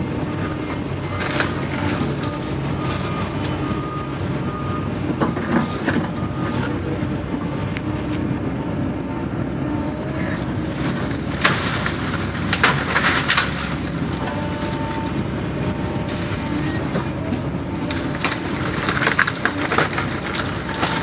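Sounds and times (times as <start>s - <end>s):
excavator diesel engine running: 0.0s - 21.0s
branches cracking and snapping: 0.2s - 4.4s, 10.3s - 21.0s.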